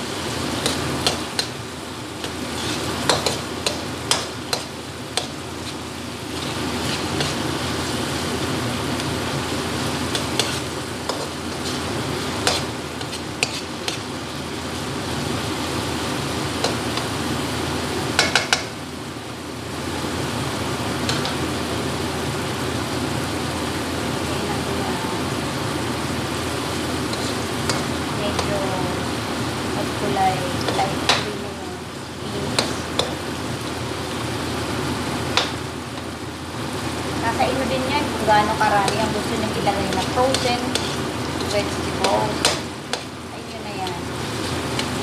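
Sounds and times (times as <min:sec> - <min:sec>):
kitchen exhaust fan whoosh: 0:00.0 - 0:45.0
vegetables sizzling in a wok: 0:00.0 - 0:45.0
spatula scraping and tapping pan: 0:00.6 - 0:01.6, 0:02.2 - 0:05.8, 0:06.4 - 0:07.5, 0:10.1 - 0:14.1, 0:18.2 - 0:18.8, 0:21.0 - 0:21.4, 0:27.1 - 0:28.5, 0:30.6 - 0:31.3, 0:32.6 - 0:33.2, 0:35.3 - 0:36.1, 0:38.8 - 0:43.1.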